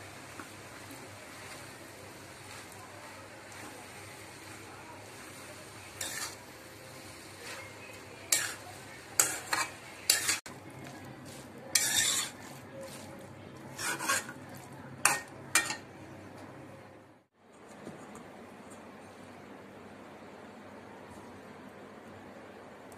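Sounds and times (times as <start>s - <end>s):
faint steady sizzle: 0.0s - 17.4s, 18.1s - 22.9s
spatula scraping a metal pan: 5.9s - 6.4s, 7.4s - 10.5s, 11.3s - 15.9s.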